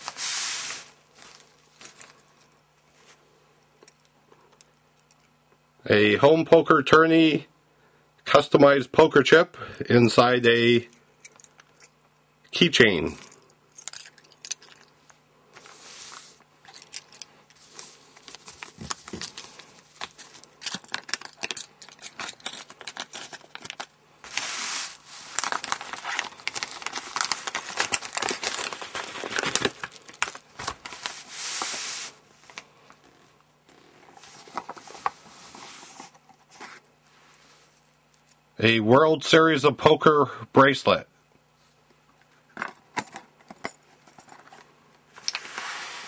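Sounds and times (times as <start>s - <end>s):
faint steady hum: 0.0s - 46.0s
packaging crinkling and tearing: 17.7s - 31.8s.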